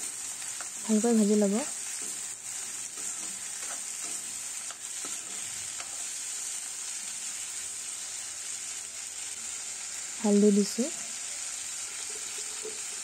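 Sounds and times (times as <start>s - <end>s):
vegetables sizzling in hot oil: 0.0s - 13.0s
metal spoon scraping a pan: 1.6s - 6.3s.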